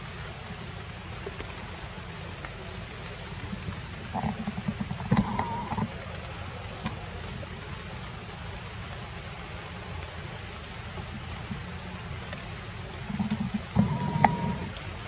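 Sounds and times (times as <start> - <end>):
faint tick: 2.4 - 7.0.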